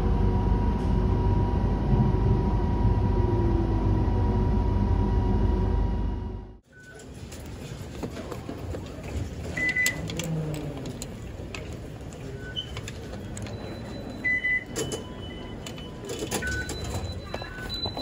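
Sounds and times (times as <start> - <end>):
steady station hum: 0.0 - 6.6
fare gate high beeps: 13.4 - 18.0.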